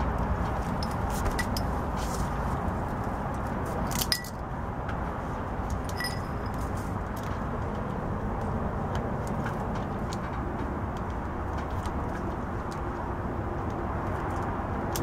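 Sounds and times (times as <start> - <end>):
steady low rumble: 0.0 - 15.0
metal tools clinking: 0.6 - 1.8, 3.9 - 4.4, 5.8 - 6.8.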